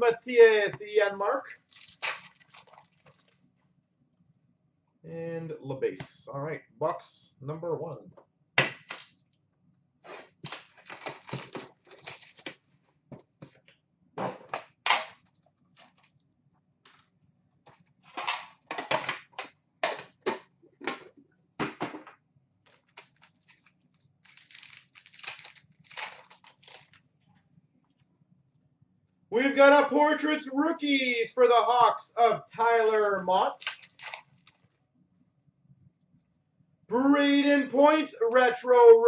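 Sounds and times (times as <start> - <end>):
card wrappers crinkling: 1.5 - 3.4, 10.5 - 12.5, 15.8 - 16.2, 22.7 - 27.1, 32.8 - 34.6
cards being handled: 22.7 - 27.0, 32.8 - 34.6.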